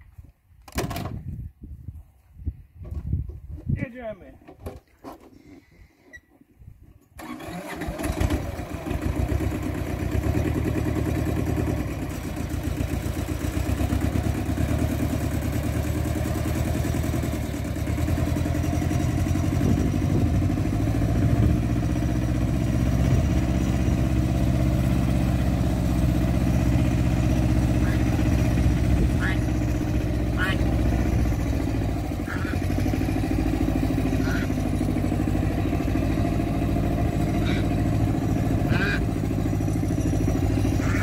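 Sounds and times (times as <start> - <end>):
tractor engine starting and running: 2.8 - 41.0.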